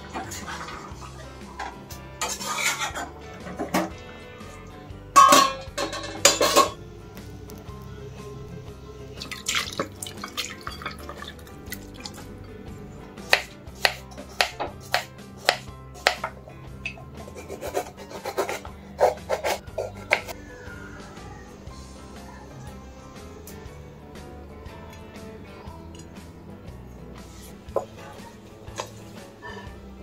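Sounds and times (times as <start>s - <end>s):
steel lid clattering onto wok: 5.2s - 6.8s.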